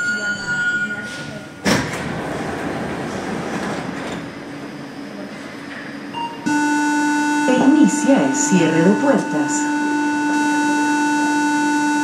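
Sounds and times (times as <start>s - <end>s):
steady electronic tone: 5.9s - 12.0s.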